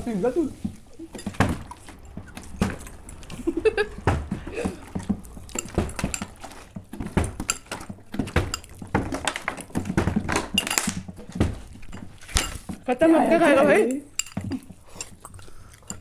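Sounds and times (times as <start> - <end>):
fork clinking in glass bowl: 5.4 - 9.2, 9.8 - 12.8, 13.6 - 16.0.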